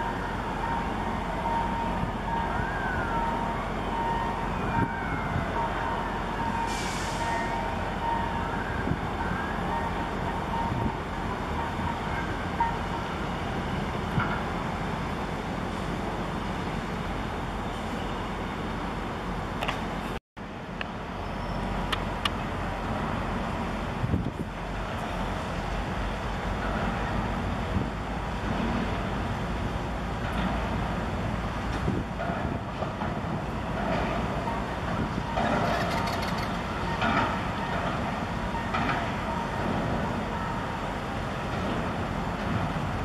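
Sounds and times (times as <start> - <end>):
outdoor background noise: 0.0 - 43.0.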